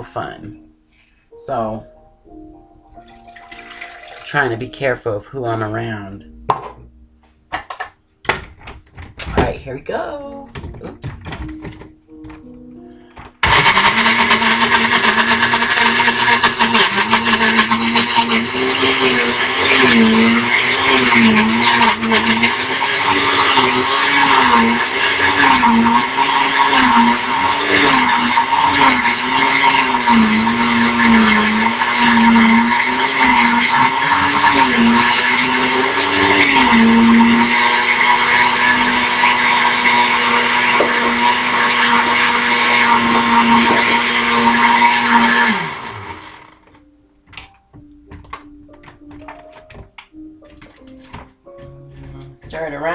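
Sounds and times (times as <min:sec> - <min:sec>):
blender motor running: 0:13.4 - 0:46.7.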